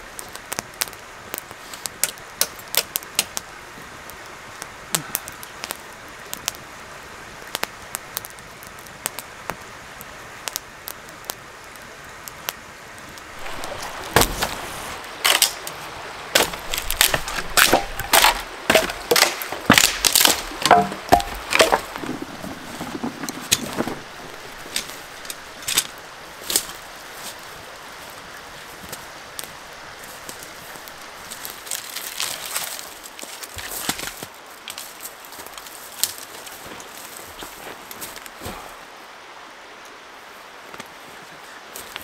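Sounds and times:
campfire crackling and popping: 0.0 - 38.8, 41.7 - 42.0
dry wood snapping by hand: 15.2 - 26.8.

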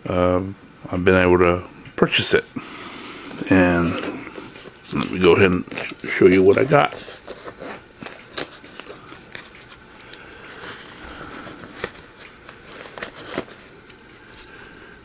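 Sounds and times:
fabric rustling: 3.4 - 14.6.

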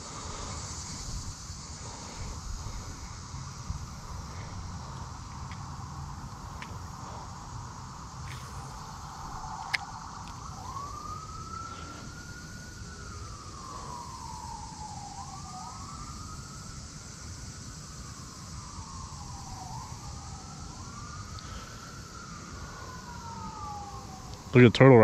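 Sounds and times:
siren wailing: 8.1 - 25.0.

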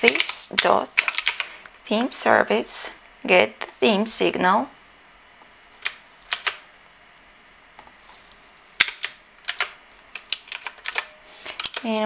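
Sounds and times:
typing on computer keyboard: 0.0 - 1.5, 5.8 - 6.6, 8.8 - 12.0.

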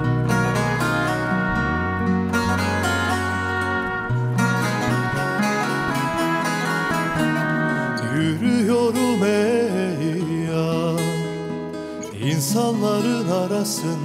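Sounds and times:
wavering vibrato melody: 0.0 - 8.2
plucked acoustic guitar: 0.0 - 14.0.

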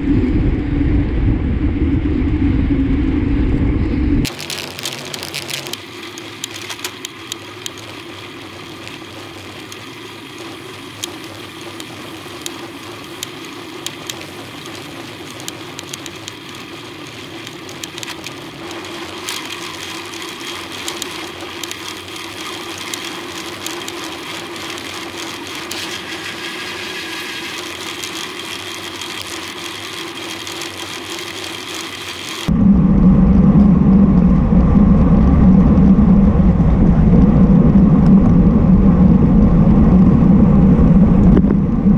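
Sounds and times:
loud low rumble: 0.0 - 4.4, 32.5 - 41.9
bicycle tyres and wind whirring: 0.0 - 41.9
small clicks: 4.2 - 32.5.

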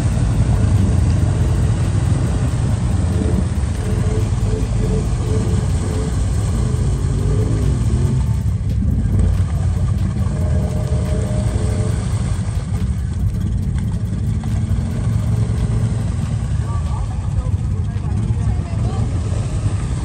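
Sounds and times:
quad engine running under load: 0.0 - 20.0.

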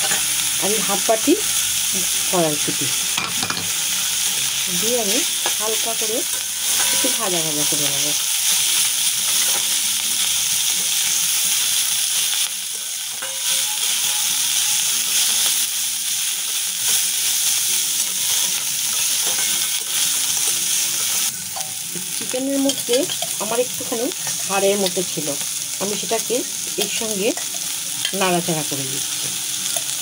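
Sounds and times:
vegetables sizzling in oil: 0.0 - 30.0
metal spatula stirring in wok: 6.3 - 7.2, 13.1 - 14.2, 18.4 - 20.5.

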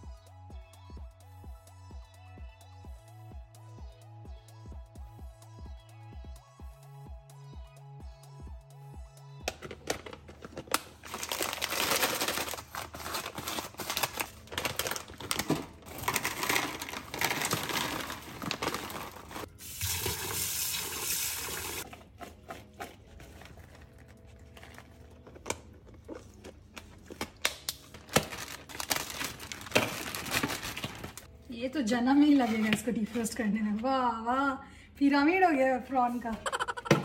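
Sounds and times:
plastic packaging crinkling: 9.5 - 19.5, 21.8 - 31.3
plastic bag crinkling: 9.8 - 19.5, 22.4 - 31.3.

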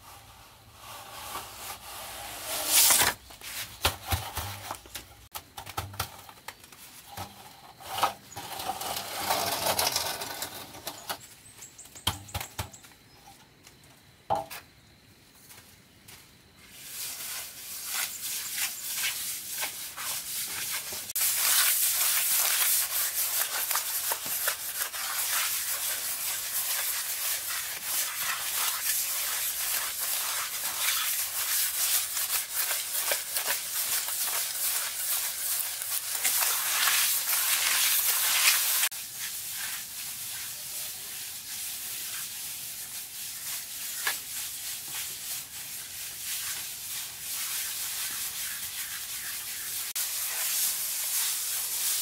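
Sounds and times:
render scraped on wall: 0.0 - 3.8, 7.8 - 11.0.

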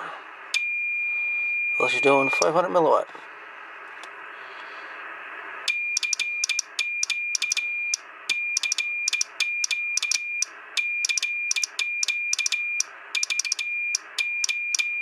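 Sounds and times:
morse code tone: 0.6 - 2.7, 5.7 - 15.0
key clicks: 5.7 - 7.6, 8.6 - 10.2, 11.0 - 12.6, 13.2 - 14.9.

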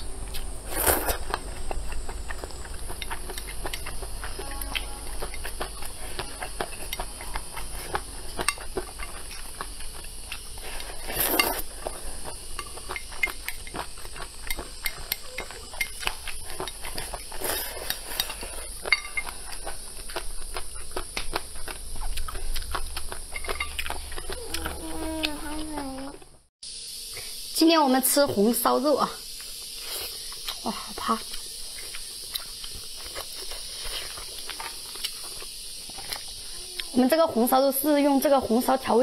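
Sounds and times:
wet chewing: 0.0 - 26.2, 29.4 - 37.6
slurping noodles: 0.6 - 1.4, 10.4 - 12.3.

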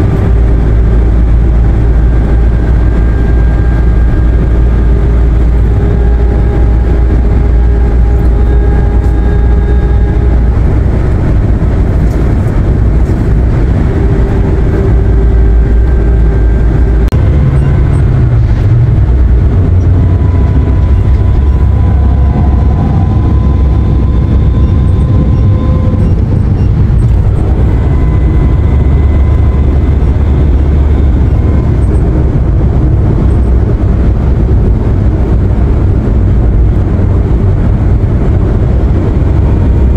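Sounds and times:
faint whining tones: 0.0 - 39.9
van engine and road rumble: 0.0 - 39.9.

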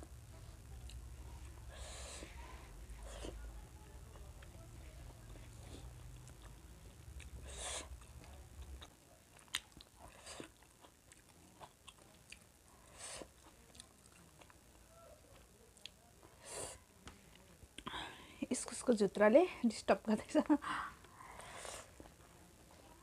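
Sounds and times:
low background hum: 0.0 - 23.0
person chewing and lip smacking: 5.3 - 12.5.

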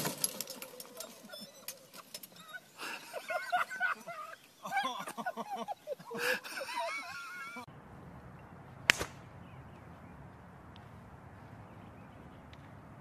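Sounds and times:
voices: 0.0 - 7.7.

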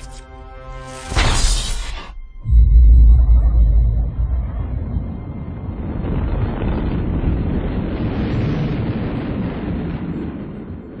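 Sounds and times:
huge explosion rumble: 2.4 - 11.0.

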